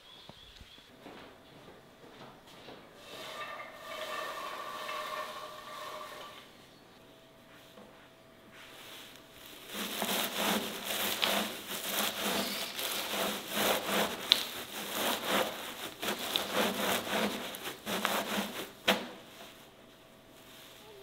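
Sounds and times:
dough rubbing on wooden board: 9.6 - 19.3.

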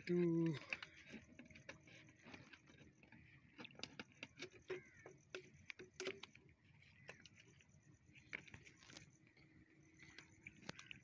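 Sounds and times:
faint bird chirps: 4.4 - 5.8.

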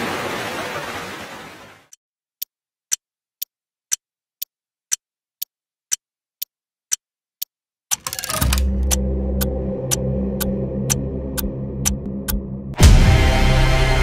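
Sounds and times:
clock ticking: 1.9 - 12.4
rapid ticks: 2.4 - 12.4
deep low drone: 8.4 - 14.0.

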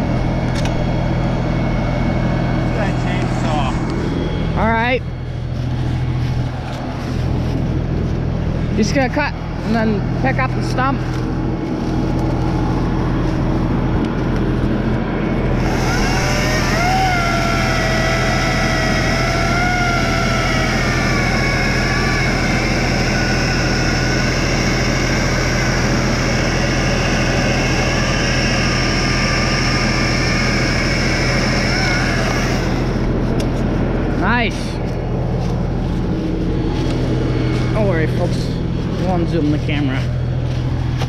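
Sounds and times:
diesel tractor engine idling: 0.0 - 41.0
electric chainsaw cutting log: 15.4 - 34.2.

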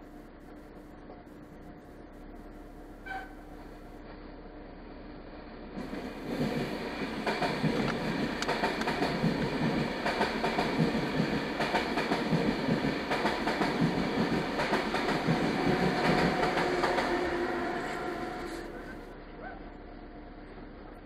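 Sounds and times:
train wheels clattering: 5.8 - 18.7.

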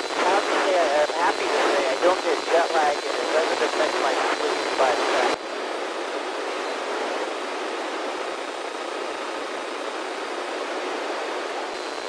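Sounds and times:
radio static hiss: 0.0 - 12.0.

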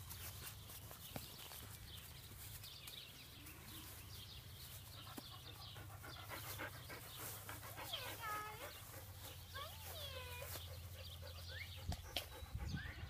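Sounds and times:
puppies panting: 4.2 - 13.0.

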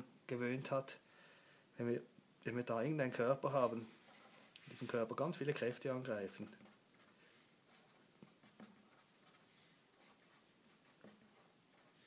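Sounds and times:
marker scratching on paper: 3.6 - 4.6, 7.7 - 12.0.

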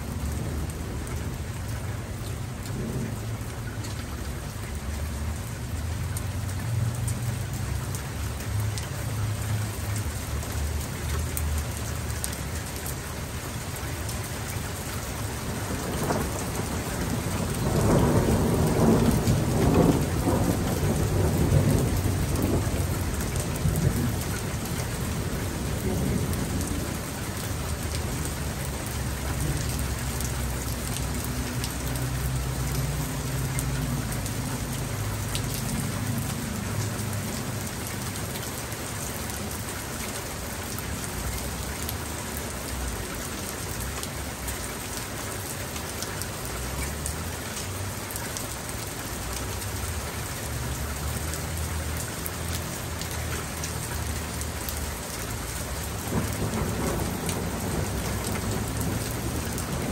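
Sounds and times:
raindrops ticking: 0.0 - 59.9
steady rain falling: 0.0 - 59.9
distant thunder rumbling: 15.4 - 28.2, 56.0 - 59.9.

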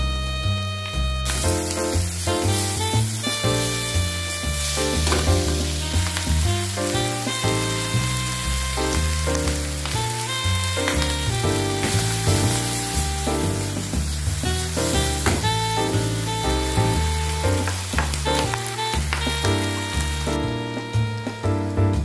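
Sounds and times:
background music: 0.0 - 22.0
meat sizzling in a frying pan: 1.2 - 20.4.

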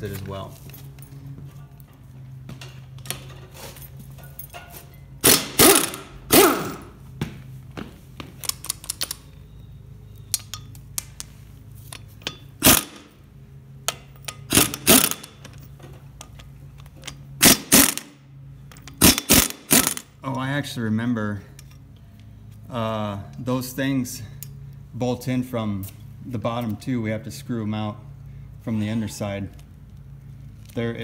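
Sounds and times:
low steady hum: 0.0 - 31.0
impact wrench bursts: 5.2 - 7.0, 12.3 - 13.3, 14.0 - 15.6, 17.0 - 18.2, 18.8 - 20.2.

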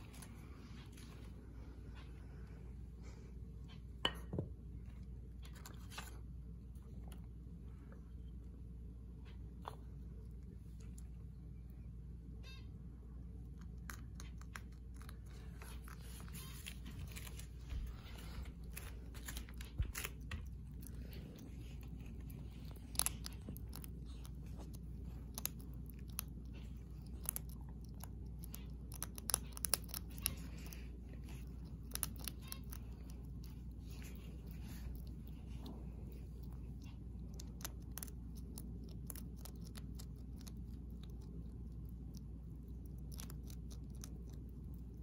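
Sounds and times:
hedgehog crunching dry pellets: 13.4 - 45.0.

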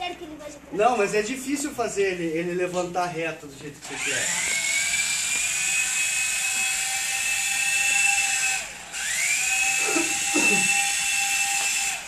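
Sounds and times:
toy helicopter motor whining: 3.8 - 12.0.

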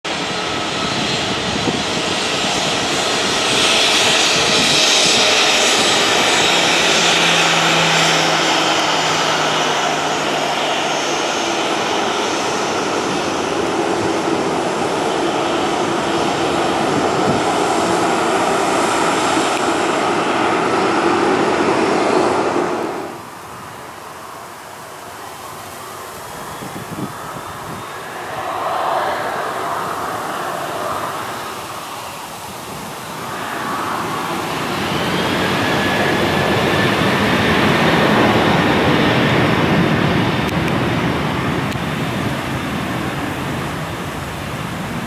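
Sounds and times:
jet engines roaring: 0.0 - 45.0
thin steady whine: 17.8 - 38.3.

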